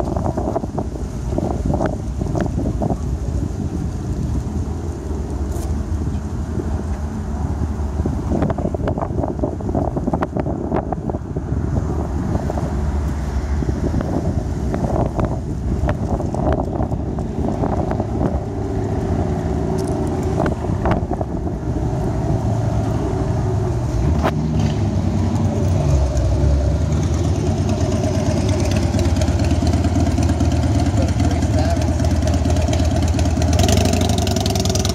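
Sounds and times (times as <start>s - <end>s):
car engine idling: 25.4s - 34.9s.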